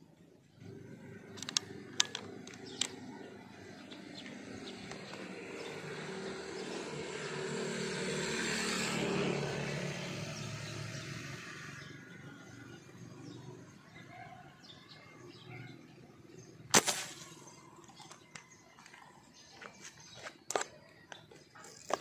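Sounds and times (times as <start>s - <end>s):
vehicle passing: 0.6s - 14.0s
sharp clicks: 1.3s - 3.0s.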